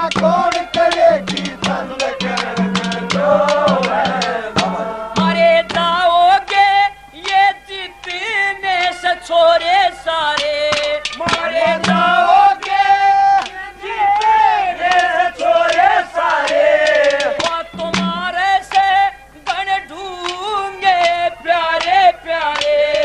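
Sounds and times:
hand drum strokes: 0.0 - 6.0, 10.8 - 12.7, 17.0 - 18.4
wavering melody line: 0.0 - 6.1, 11.5 - 12.6, 17.7 - 18.4
percussion hits: 0.0 - 6.6, 10.4 - 13.6, 14.9 - 18.9
low held drone tone: 0.0 - 7.2, 11.4 - 13.4, 17.8 - 18.5
man singing folk song: 0.0 - 14.5, 17.2 - 23.0.

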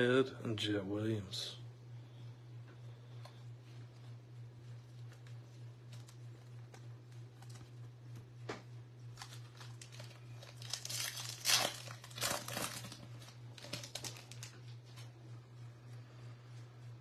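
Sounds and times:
steady low hum: 0.0 - 17.0
foil pack tearing and crinkling: 9.1 - 14.6.

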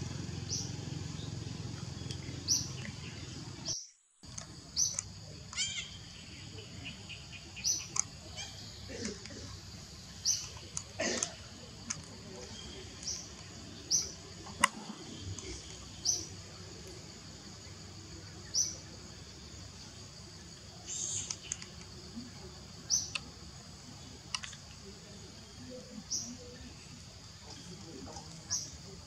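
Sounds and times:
steady high hiss: 0.0 - 29.0
bird chirping: 0.1 - 29.0
sharp clicks: 4.2 - 5.6, 10.3 - 12.2, 21.1 - 21.9, 24.3 - 24.7.

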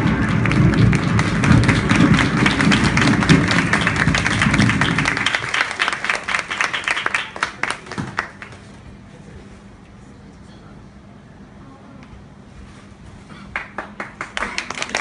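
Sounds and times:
audience applauding: 0.0 - 8.6, 13.5 - 15.0.

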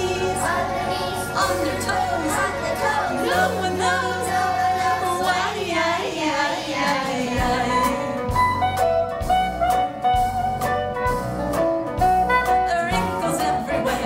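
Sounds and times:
children's song playing: 0.0 - 9.2, 12.4 - 14.0.

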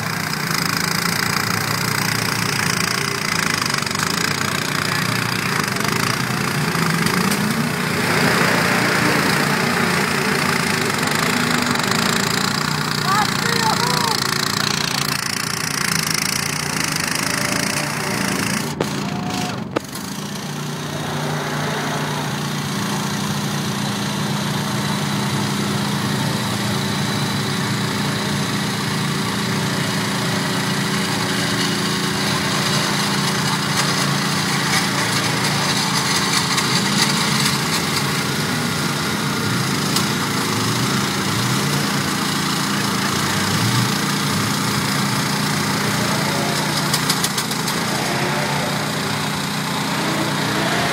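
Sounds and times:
tractor engine running: 0.0 - 50.9.

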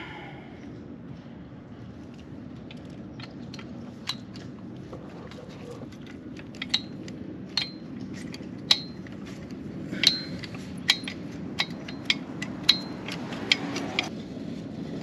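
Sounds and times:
sharp metallic taps: 6.6 - 9.2, 10.0 - 14.1
socket clicking against metal: 10.0 - 14.1.

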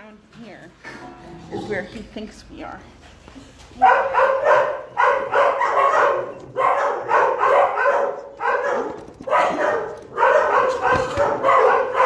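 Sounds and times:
dog barking: 3.8 - 12.0.

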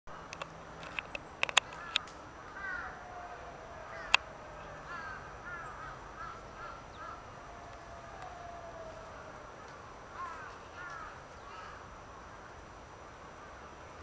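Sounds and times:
sharp clicks: 0.3 - 2.2.

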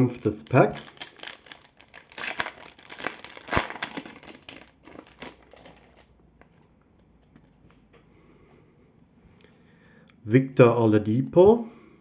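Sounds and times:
foil ripping: 0.0 - 6.1
foil wrapper crinkling: 0.0 - 6.2.

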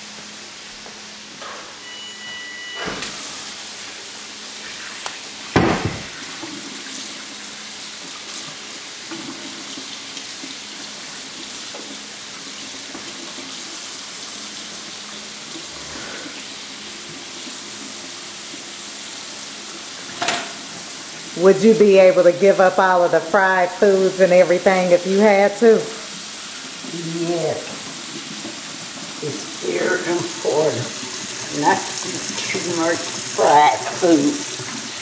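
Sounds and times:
loud knock: 5.6 - 6.1
faucet running into sink: 5.8 - 15.7, 24.6 - 35.0.

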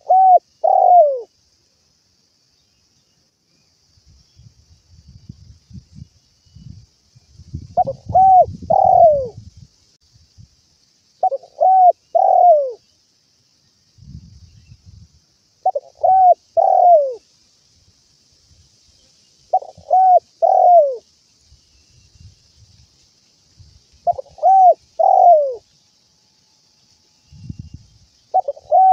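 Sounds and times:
dove cooing: 0.0 - 1.3, 7.8 - 9.4, 11.2 - 12.8, 15.6 - 17.2, 19.5 - 21.0, 24.0 - 25.6, 28.3 - 28.9.

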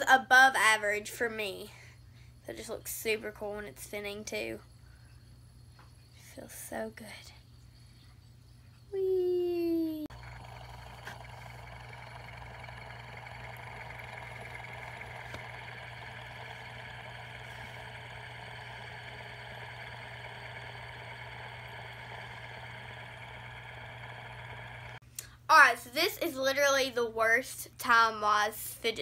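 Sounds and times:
fidget spinner whirring: 10.0 - 25.0.

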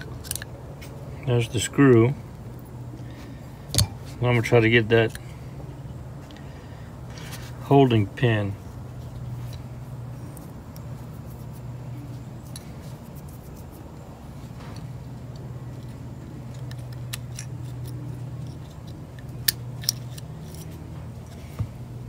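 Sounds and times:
hand tool clicks and scrapes: 0.0 - 1.0, 14.6 - 21.5
steady low hum: 0.0 - 22.0.

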